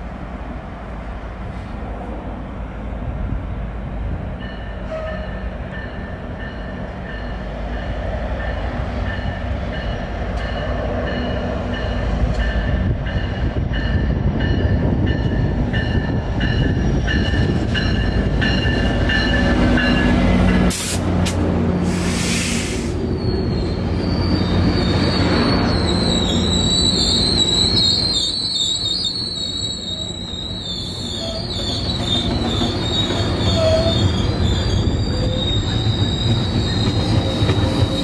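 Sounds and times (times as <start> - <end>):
train engine and wheel rumble: 0.0 - 38.0
train bell ringing: 4.4 - 20.6.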